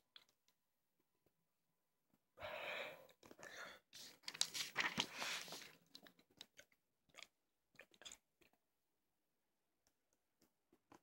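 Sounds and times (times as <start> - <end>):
paper pages rustling: 4.0 - 5.8.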